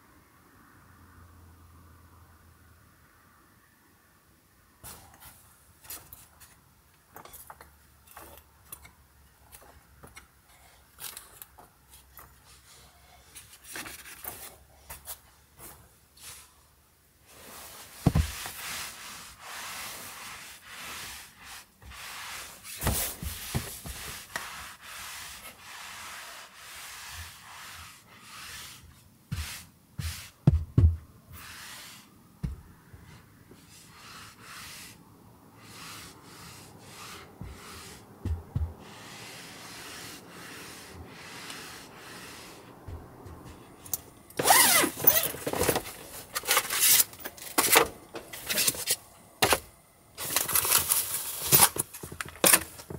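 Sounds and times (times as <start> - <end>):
hands rubbing fabric cushion: 17.3 - 30.6, 35.6 - 43.7
knocks and thumps: 18.0 - 18.4, 29.3 - 31.1, 32.4 - 32.7, 38.2 - 38.8.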